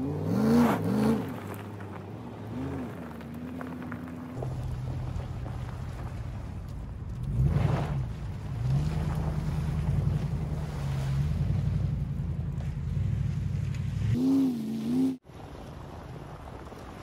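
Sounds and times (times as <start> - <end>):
engine revving: 0.0 - 1.4, 7.2 - 15.2
tyres on gravel and mud: 0.0 - 17.0.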